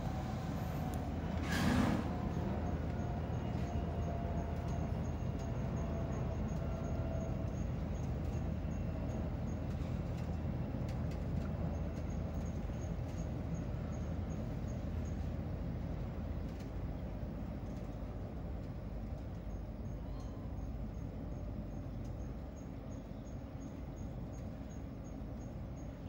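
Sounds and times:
low outdoor rumble: 0:00.0 - 0:26.0
faint high ticks: 0:02.9 - 0:15.4.

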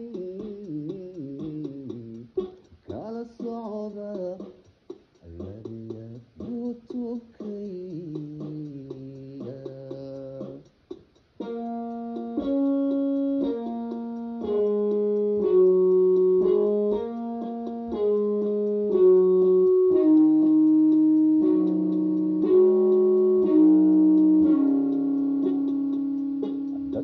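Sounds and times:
electric keyboard chords: 0:08.0 - 0:27.0.

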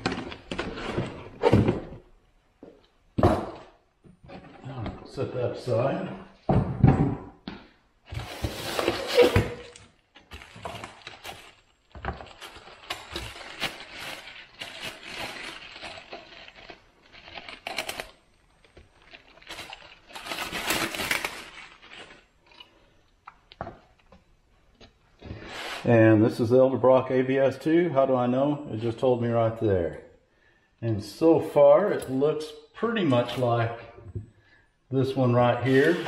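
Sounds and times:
cardboard packaging rustling: 0:08.1 - 0:22.7, 0:35.6 - 0:36.0
plastic bag crinkling: 0:10.2 - 0:22.7.

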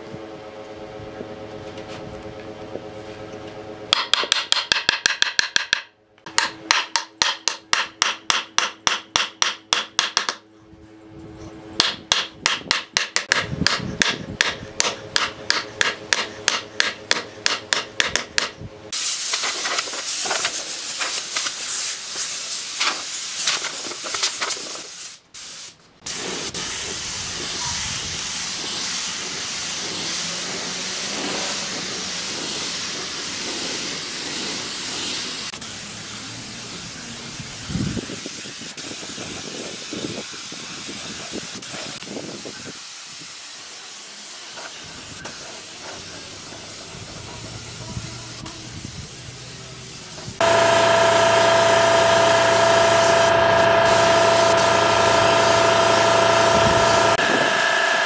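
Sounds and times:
hammer striking wood block: 0:03.9 - 0:10.4, 0:11.8 - 0:18.6
spray gun hissing: 0:18.9 - 0:57.4.

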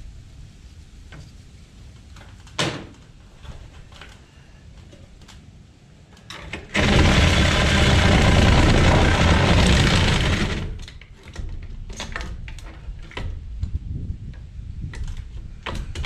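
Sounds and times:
loud power tool running: 0:06.7 - 0:10.8.

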